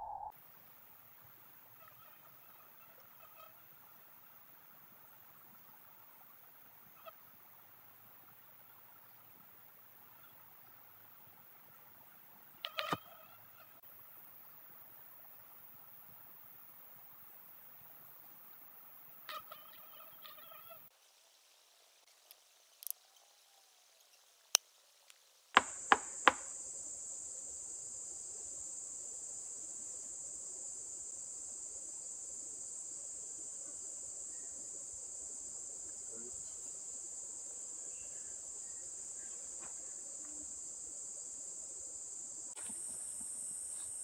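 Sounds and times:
sharp knocks: 0:25.6 - 0:26.5
high-pitched insect chorus: 0:25.6 - 0:44.0.

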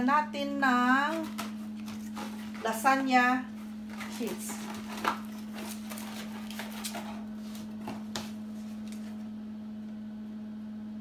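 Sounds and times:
steady low hum: 0:00.0 - 0:11.0
cardboard box rustling: 0:01.1 - 0:02.8, 0:03.6 - 0:09.1.

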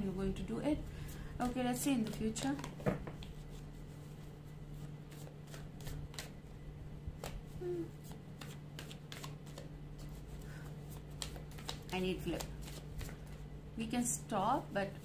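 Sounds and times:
steady low hum: 0:00.0 - 0:15.0
cards being shuffled: 0:01.4 - 0:06.4, 0:07.2 - 0:13.5.

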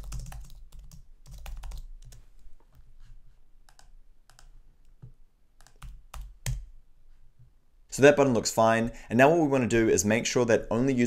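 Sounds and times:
typing on computer keyboard: 0:00.0 - 0:02.2, 0:03.7 - 0:04.5, 0:05.6 - 0:06.7.

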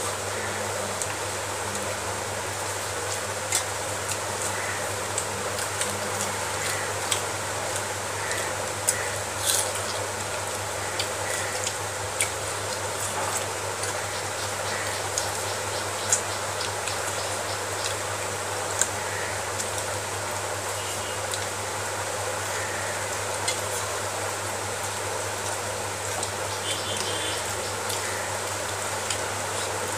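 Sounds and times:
steady hiss and low hum: 0:00.0 - 0:29.9
chewing and lip smacking: 0:05.2 - 0:14.0.

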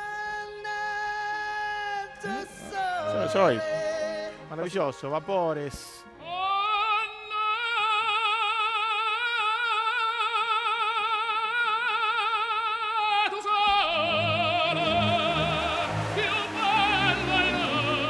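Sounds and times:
operatic singing with vibrato: 0:00.0 - 0:05.2, 0:06.0 - 0:18.0
low accompaniment: 0:13.8 - 0:18.0.

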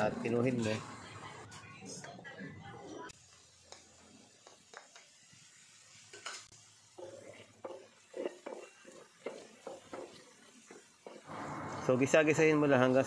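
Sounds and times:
light sizzle: 0:03.1 - 0:13.0
wooden spoon scraping pan: 0:07.0 - 0:11.3.

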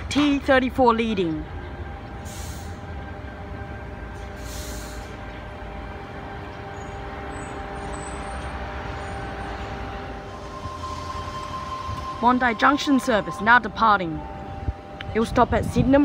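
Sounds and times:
electric train hum: 0:00.0 - 0:16.0
air brake hisses: 0:02.2 - 0:02.9, 0:04.2 - 0:05.2.

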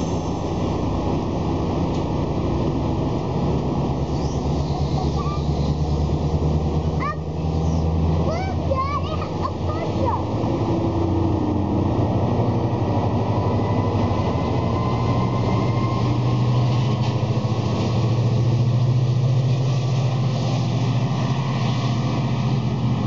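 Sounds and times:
diesel locomotive engine drone: 0:00.0 - 0:23.0
train wheels rumbling: 0:00.0 - 0:23.0.

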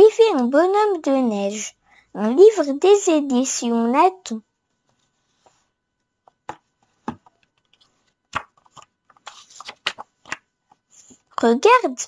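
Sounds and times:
taps and knocks on book: 0:06.2 - 0:07.7, 0:08.3 - 0:08.9
book pages turning: 0:06.3 - 0:11.4.

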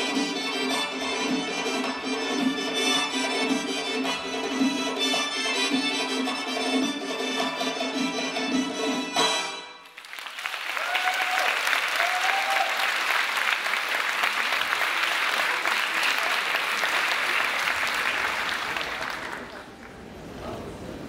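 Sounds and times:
folk dance music: 0:00.0 - 0:20.4
audience applause: 0:09.9 - 0:21.0
short cheers: 0:10.3 - 0:13.2.

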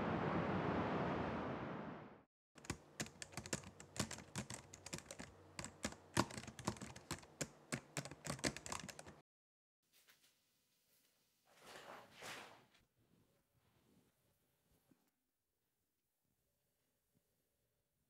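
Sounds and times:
typing on keyboard: 0:02.6 - 0:09.2.

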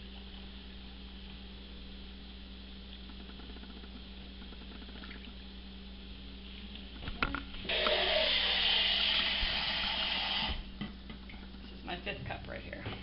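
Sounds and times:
tap water running: 0:07.6 - 0:11.4.

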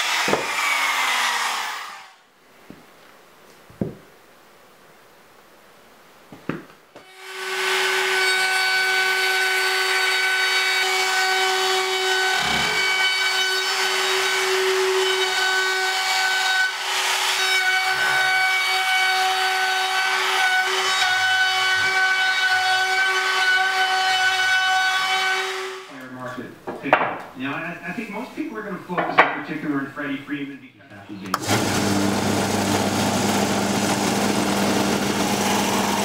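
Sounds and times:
trim router whining: 0:00.0 - 0:02.2, 0:07.0 - 0:25.8, 0:31.2 - 0:36.0.

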